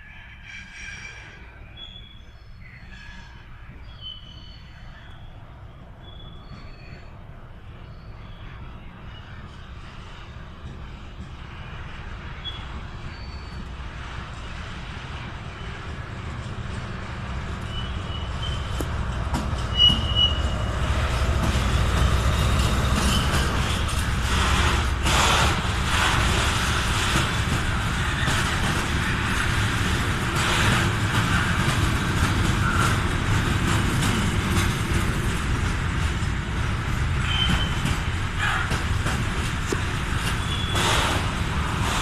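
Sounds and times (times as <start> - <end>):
locomotive passing: 0.0 - 42.0
train wagons rumbling and clanking: 0.0 - 42.0
high wheel squeals: 12.4 - 13.7, 17.6 - 18.8, 19.6 - 26.1, 37.2 - 38.7, 40.2 - 41.9.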